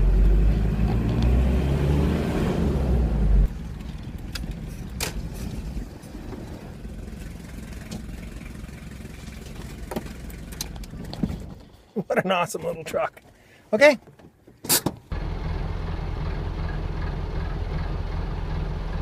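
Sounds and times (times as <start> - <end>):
diesel engine running: 0.0 - 11.3, 15.1 - 19.0.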